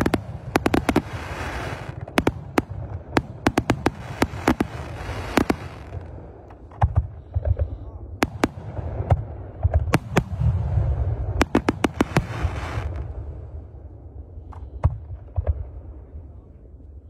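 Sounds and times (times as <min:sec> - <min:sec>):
fireworks bangs: 0:00.0 - 0:07.1, 0:08.2 - 0:13.3
low rumble of firework launches: 0:00.0 - 0:17.0.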